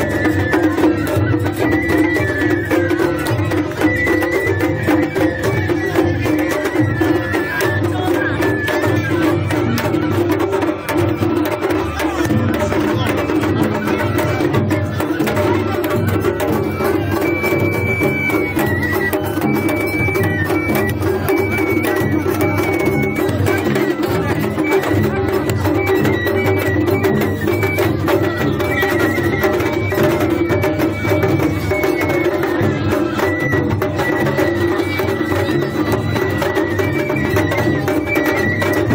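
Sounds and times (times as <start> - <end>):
high bamboo flute: 0.0 - 38.9
taiko drums rhythm: 0.0 - 38.9.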